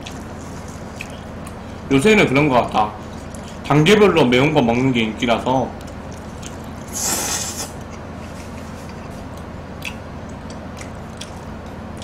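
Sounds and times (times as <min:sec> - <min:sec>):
steady low hum: 0:00.0 - 0:12.0
person slurping noodles: 0:06.9 - 0:07.8.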